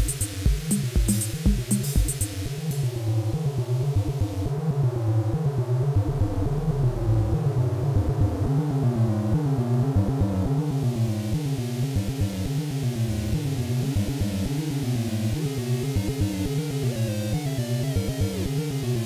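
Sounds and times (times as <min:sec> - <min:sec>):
electronic drum beat: 0:00.0 - 0:02.9
stepping synth notes: 0:00.0 - 0:19.0
synth bass line: 0:00.0 - 0:19.0.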